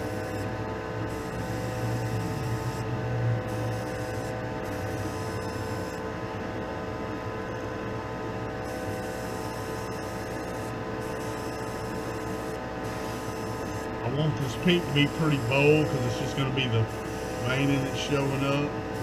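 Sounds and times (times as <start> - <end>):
exhaust fan humming: 10.6 - 19.0.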